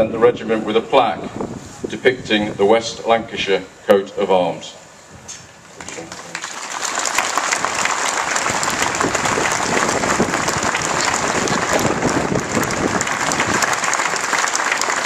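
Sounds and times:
crowd applauding: 0:05.9 - 0:15.0.

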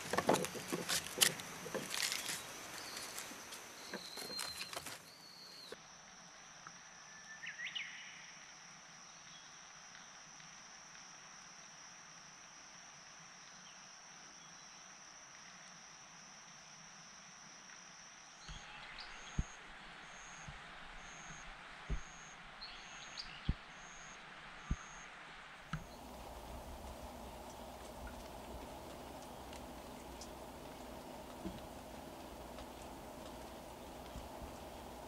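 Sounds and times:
dry stalks rustling: 0:00.0 - 0:05.8, 0:25.6 - 0:35.0.

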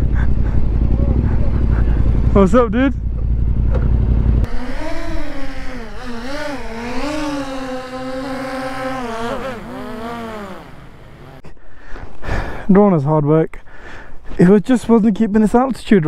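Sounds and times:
drone propellers whining: 0:00.0 - 0:11.4
low engine rumble: 0:00.0 - 0:11.4.

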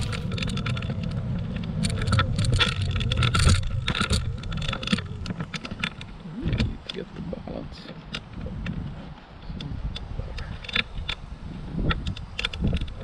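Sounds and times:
rattling clicks and knocks: 0:00.0 - 0:08.8
scooter ride rumble: 0:00.0 - 0:13.0.

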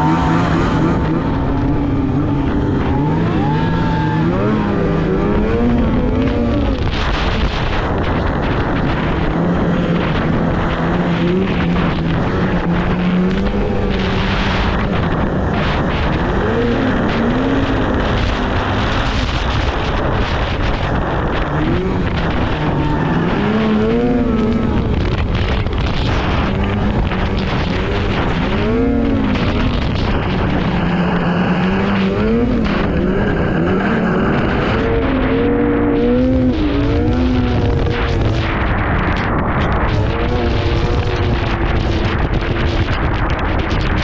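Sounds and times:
snowmobile engine revving: 0:00.0 - 0:44.0
wind noise on microphone: 0:00.0 - 0:44.0.

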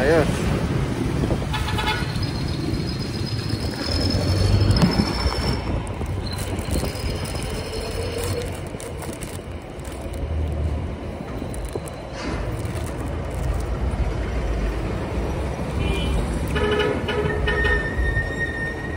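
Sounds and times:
street traffic: 0:00.0 - 0:18.9.

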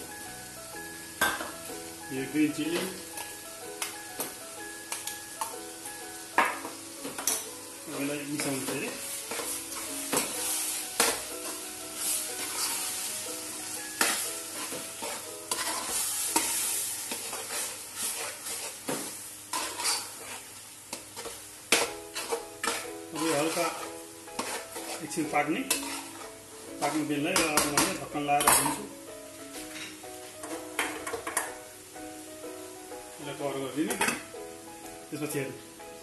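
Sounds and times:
onions sizzling in hot oil: 0:00.0 - 0:36.0
metal spatula scraping pot: 0:09.3 - 0:13.0, 0:14.0 - 0:27.4.

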